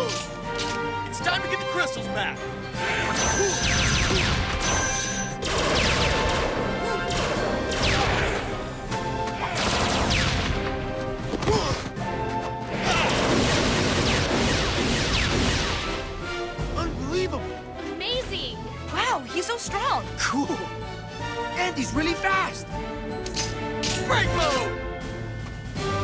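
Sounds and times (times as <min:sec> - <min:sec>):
background music: 0:00.0 - 0:26.0.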